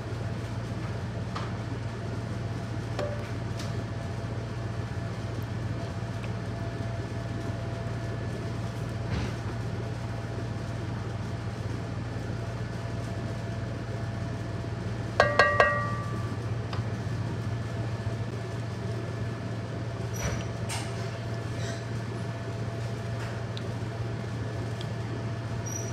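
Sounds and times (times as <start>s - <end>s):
utensil clinking against cookware: 15.2s - 16.2s.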